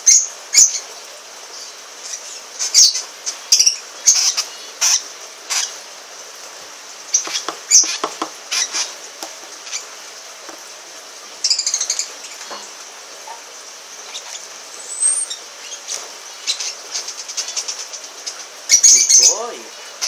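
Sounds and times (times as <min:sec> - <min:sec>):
lovebirds chirping: 0:07.0 - 0:10.0, 0:14.0 - 0:20.0.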